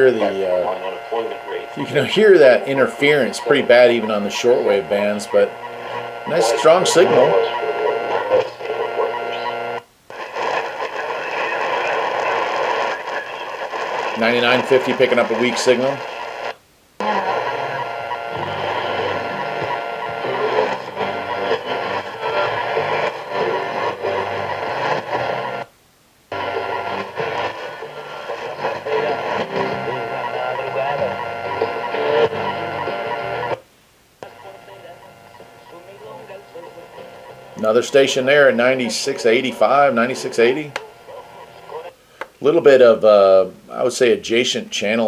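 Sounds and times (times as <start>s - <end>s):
radio interference hum: 0.0s - 45.0s
radio static hiss: 0.0s - 45.0s
weak radio station: 0.0s - 45.0s.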